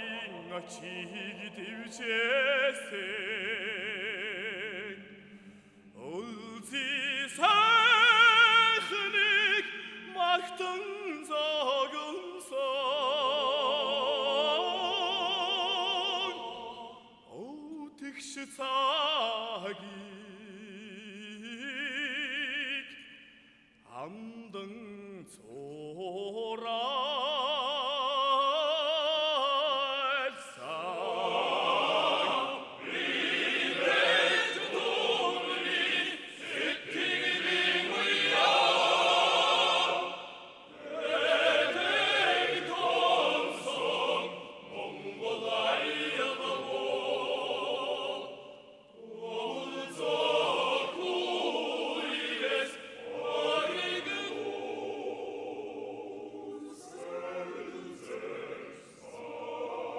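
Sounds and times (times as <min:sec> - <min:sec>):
man singing with vibrato: 0:00.0 - 0:05.1, 0:06.0 - 0:31.4
male choir singing: 0:00.0 - 0:23.0, 0:23.9 - 0:59.9.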